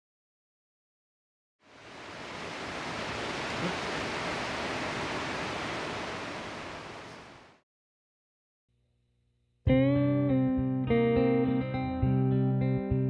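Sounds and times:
rushing hiss: 1.7s - 7.4s.

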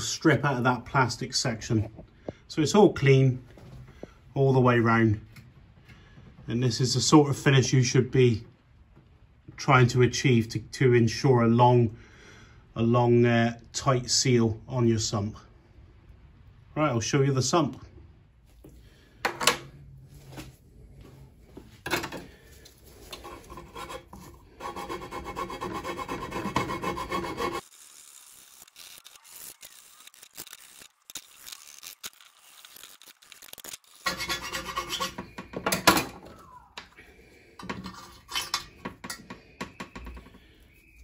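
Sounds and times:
scraping on metal sump: 21.8s - 27.6s, 34.0s - 36.2s, 37.5s - 40.6s.

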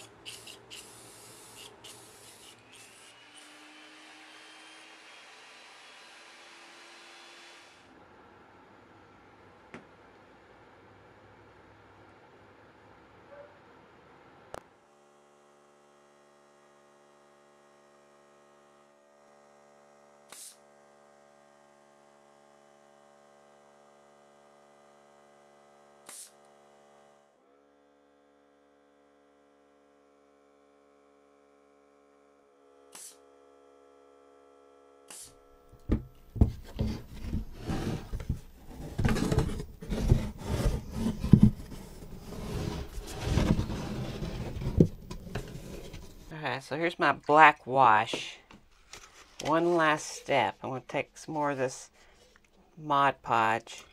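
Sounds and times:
wooden box rubbing and knocking: 35.8s - 46.3s.

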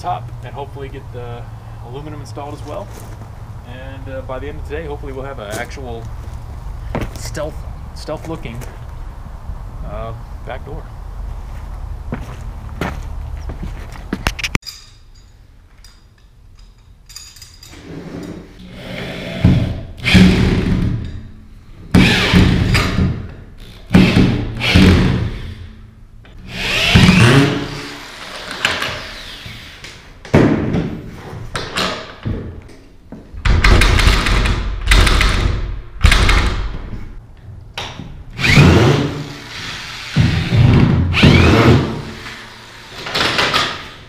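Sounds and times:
power drill running: 26.5s - 29.8s, 38.4s - 43.3s.

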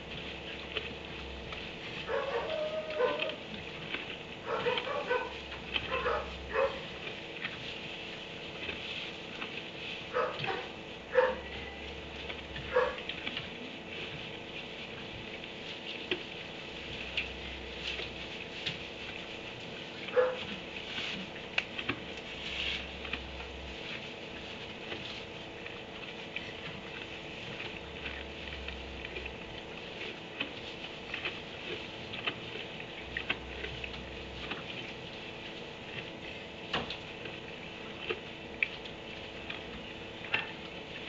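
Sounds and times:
dog barking: 2.1s - 3.4s, 4.4s - 6.9s, 10.1s - 11.5s, 12.7s - 13.0s, 20.1s - 20.4s.

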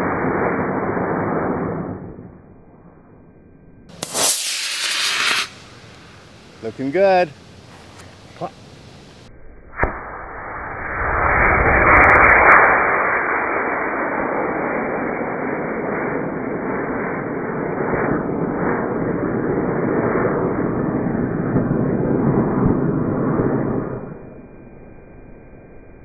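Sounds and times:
rocket motor roaring: 3.9s - 24.3s.

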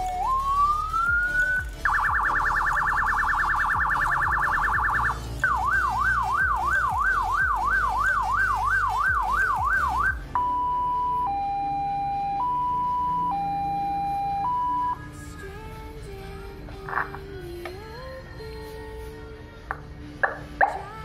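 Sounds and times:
electronic siren wailing: 0.0s - 15.2s.

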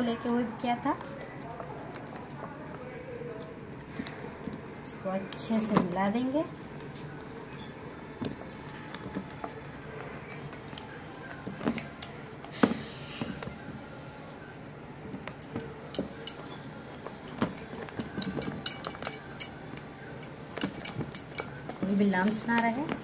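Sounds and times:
spatula stirring thick mixture: 0.0s - 23.0s
clinks against metal bowl: 15.4s - 16.6s, 18.0s - 19.6s, 20.2s - 22.1s.

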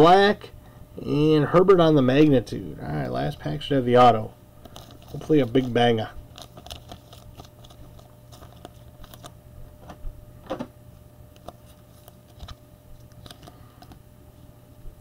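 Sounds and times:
low steady hum: 0.0s - 15.0s
foil wrapper crinkling and tearing: 4.6s - 9.4s, 11.3s - 14.0s
cards being handled: 4.6s - 10.7s, 11.3s - 14.0s.

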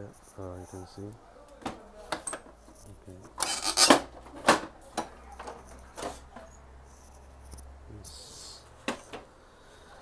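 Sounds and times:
plastic cover scraping: 3.4s - 4.6s.

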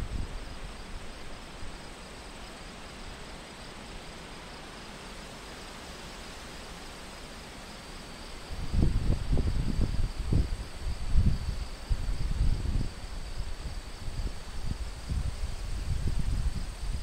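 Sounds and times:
insects chirring: 0.0s - 17.0s
wind through grass: 0.0s - 17.0s
wind buffeting microphone: 8.5s - 17.0s.

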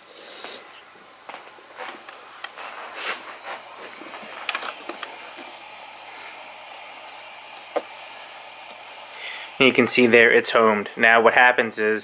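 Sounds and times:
cooling fans hissing: 0.0s - 12.0s.

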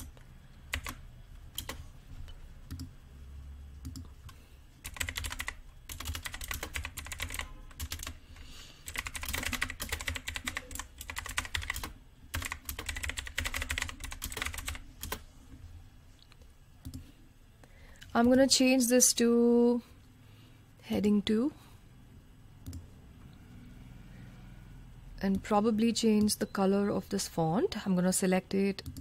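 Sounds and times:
computer keyboard typing: 0.0s - 1.8s, 2.7s - 2.9s, 3.8s - 8.2s, 8.8s - 15.2s.

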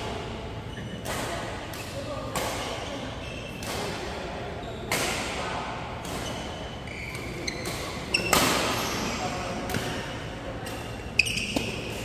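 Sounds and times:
court shoes squeaking: 0.0s - 12.0s
badminton racket hitting shuttlecock: 1.0s - 2.9s, 3.6s - 4.3s, 4.9s - 5.4s, 6.0s - 12.0s.

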